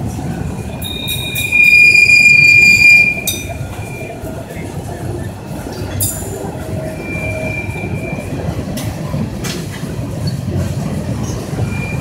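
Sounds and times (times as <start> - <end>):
freight cars rolling rumble: 0.0 - 12.0
wheels clacking over rail joints: 0.0 - 12.0
high wheel squeal: 0.4 - 4.8, 5.5 - 8.8, 11.2 - 12.0.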